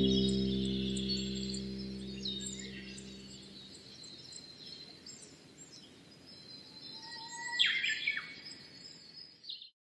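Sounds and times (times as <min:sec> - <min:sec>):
bird call with down-slurred notes: 0:00.0 - 0:03.9
small birds chirping: 0:00.0 - 0:09.7.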